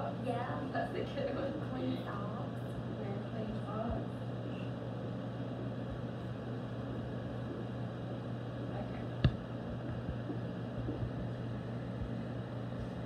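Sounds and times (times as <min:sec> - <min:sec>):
ventilation fan hum: 0:00.0 - 0:13.0.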